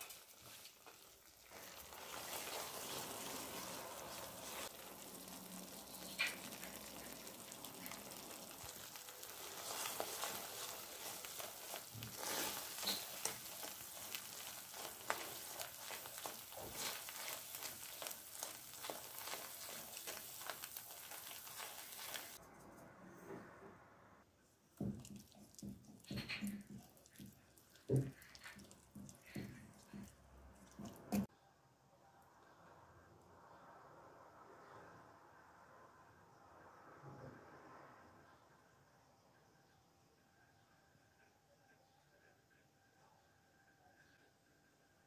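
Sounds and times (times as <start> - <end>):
sauce sizzling and bubbling: 0.0 - 22.4, 24.8 - 31.3
whisk scraping pan: 9.2 - 22.4.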